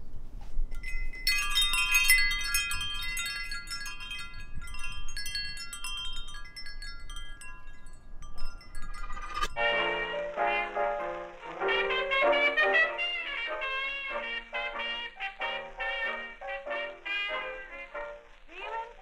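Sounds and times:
metal wind chime ringing: 0.7s - 10.4s.

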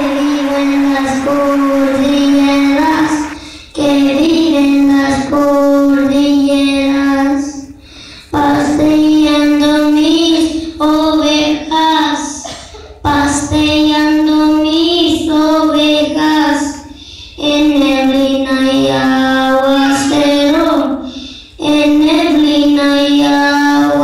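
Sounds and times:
children singing: 0.0s - 7.3s, 17.7s - 21.1s.

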